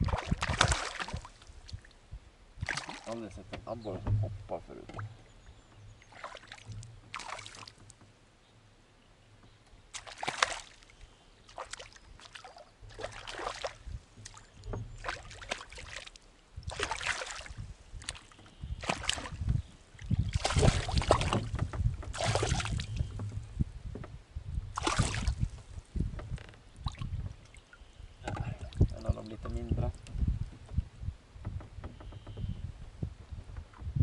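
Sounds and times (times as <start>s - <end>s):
fish splashing at surface: 0.0s - 1.3s, 10.0s - 10.8s, 16.7s - 19.4s, 20.3s - 21.4s, 22.2s - 23.0s, 24.8s - 25.4s.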